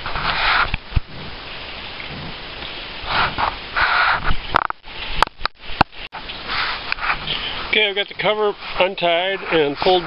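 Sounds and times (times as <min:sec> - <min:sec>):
tarp rustling: 0:00.0 - 0:10.0
sharp clicks and knocks: 0:04.2 - 0:06.0.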